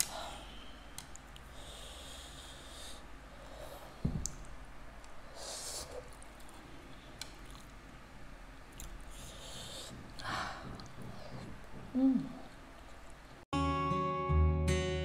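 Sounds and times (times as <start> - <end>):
hissy breath: 0.0 - 4.0, 5.3 - 6.1, 9.1 - 11.4
faint eating sounds: 0.0 - 13.4.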